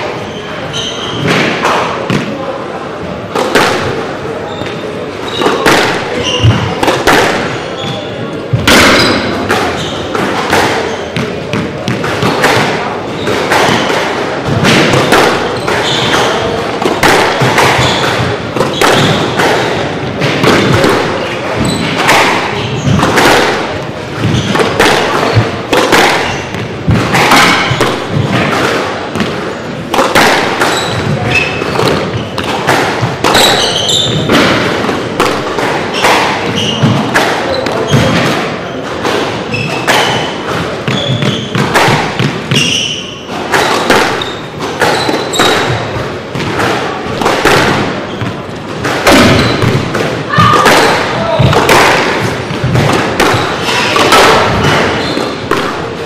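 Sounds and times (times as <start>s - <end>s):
shoe squeaks: 0.1s - 1.4s, 4.3s - 6.8s, 7.5s - 8.3s, 8.9s - 11.3s, 13.1s - 14.0s, 15.0s - 16.6s, 17.6s - 19.4s, 21.5s - 23.0s, 24.2s - 25.6s, 26.2s - 26.6s, 30.6s - 32.5s, 33.3s - 34.4s, 35.9s - 41.6s, 42.5s - 45.8s, 47.9s - 48.6s, 49.2s - 49.8s, 54.6s - 55.4s
squash ball thuds: 1.0s - 2.5s, 3.2s - 56.0s.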